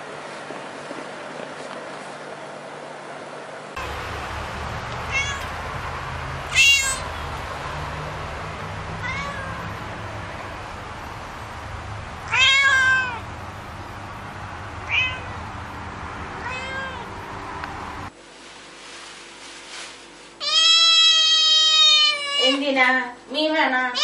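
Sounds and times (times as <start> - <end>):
steady hiss: 3.8 - 6.5
cat meowing: 5.1 - 5.6, 6.5 - 7.2, 9.0 - 9.8, 12.3 - 13.3, 14.8 - 15.4, 16.4 - 17.1, 20.4 - 22.6.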